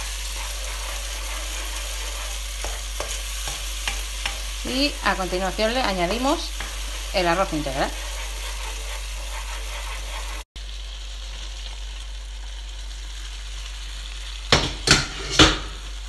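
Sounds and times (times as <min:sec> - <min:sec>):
sauce sizzling in a frying pan: 0:00.0 - 0:16.0
knocks on a pan: 0:14.5 - 0:15.7.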